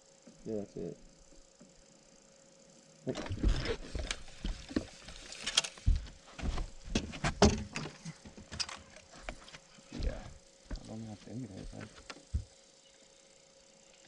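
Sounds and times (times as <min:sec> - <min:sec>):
footsteps on boat deck: 0:03.3 - 0:08.6, 0:09.2 - 0:12.5
knocks and thumps on boat deck: 0:05.8 - 0:08.6, 0:11.7 - 0:12.5.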